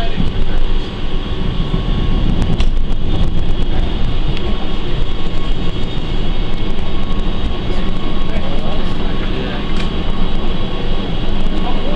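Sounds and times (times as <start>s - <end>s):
thin steady whine: 0.0s - 11.9s
train running rumble: 0.0s - 11.9s.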